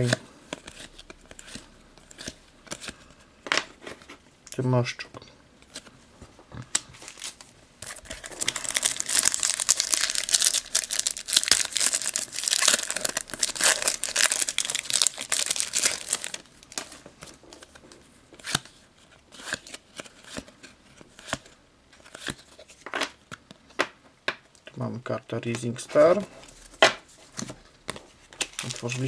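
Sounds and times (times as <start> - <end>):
cards clicking and rustling: 0.0 - 4.1
foil packet crinkling and tearing: 7.0 - 17.0, 28.4 - 29.0.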